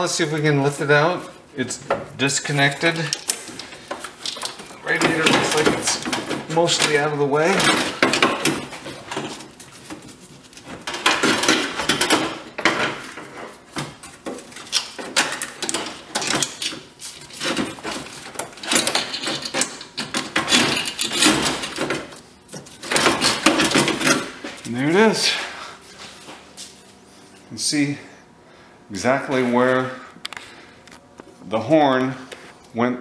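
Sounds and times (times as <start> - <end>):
metal scraping and rattling: 0.9 - 25.4.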